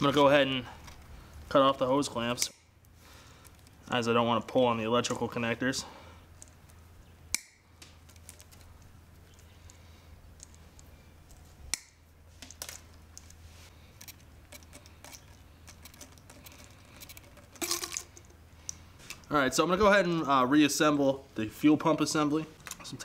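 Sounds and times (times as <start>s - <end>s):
plastic parts clicking: 14.0s - 19.3s.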